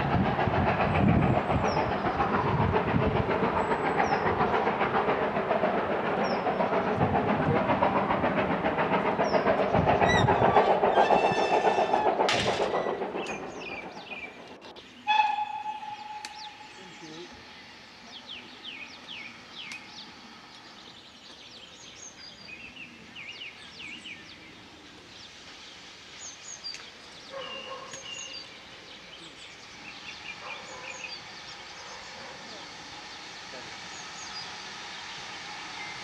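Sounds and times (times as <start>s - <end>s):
train wheels clattering on rails: 0.0s - 16.6s
birds chirping: 0.2s - 36.0s
steam locomotive whistle: 11.0s - 12.1s, 15.0s - 16.8s.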